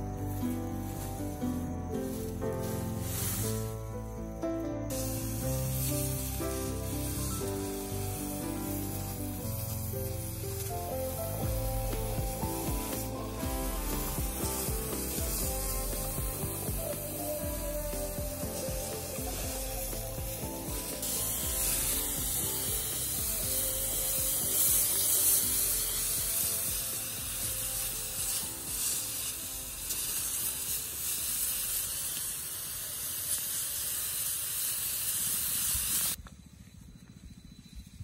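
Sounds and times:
sprayer hissing: 0:00.0 - 0:36.2.

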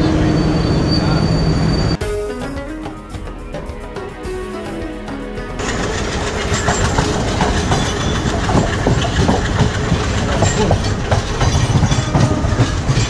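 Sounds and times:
train rumbling: 0:00.0 - 0:13.0
wheels clattering over rail joints: 0:05.6 - 0:13.0.

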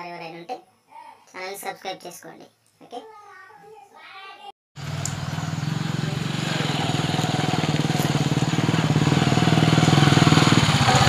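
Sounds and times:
motorcycle engine approaching: 0:04.8 - 0:11.0.

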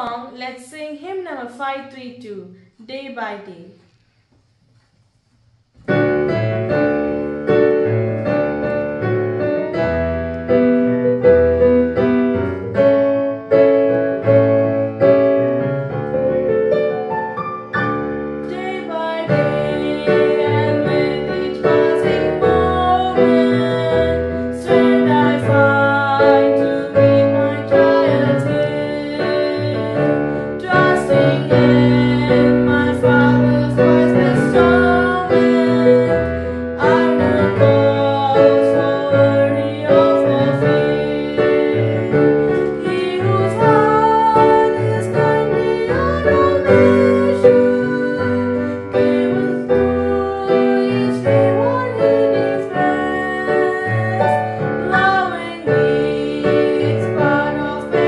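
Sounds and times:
girl singing: 0:00.0 - 0:02.4, 0:18.4 - 0:58.0
digital piano playing a hymn: 0:05.8 - 0:58.0.

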